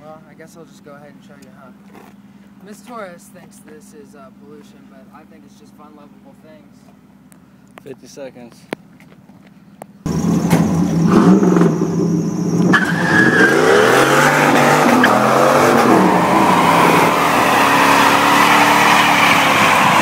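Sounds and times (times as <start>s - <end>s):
pickup truck engine: 8.7s - 20.0s
car engine revving hard: 10.1s - 20.0s
tyres squealing: 10.7s - 20.0s.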